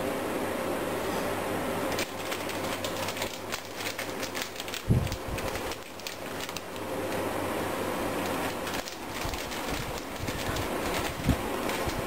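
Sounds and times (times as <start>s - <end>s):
steady low hum: 0.0s - 12.0s
plastic bag crinkling: 2.0s - 6.8s, 8.2s - 12.0s.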